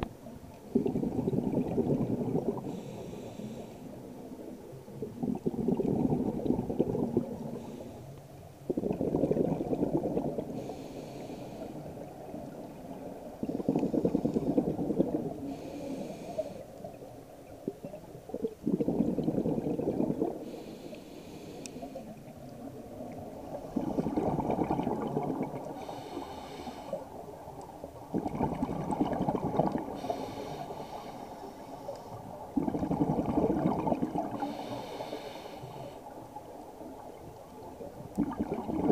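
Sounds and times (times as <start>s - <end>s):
exhaled bubbles gurgling underwater: 0.0s - 38.9s
regulator inhale hiss: 2.5s - 4.1s, 7.3s - 8.3s, 10.5s - 12.1s, 15.4s - 16.8s, 20.4s - 22.2s, 25.6s - 27.4s, 29.9s - 32.4s, 34.3s - 36.2s.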